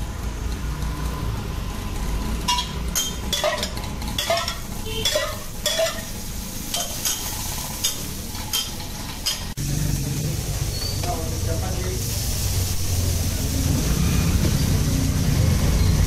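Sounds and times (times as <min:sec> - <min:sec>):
oil sizzling on a griddle: 0:00.0 - 0:16.0
metal spatula scraping a griddle: 0:02.5 - 0:09.5.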